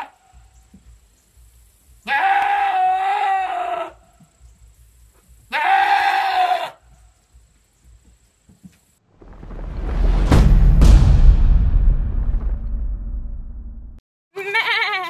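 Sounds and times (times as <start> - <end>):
goat screaming: 2.0 - 4.1, 5.5 - 6.8, 14.4 - 15.0.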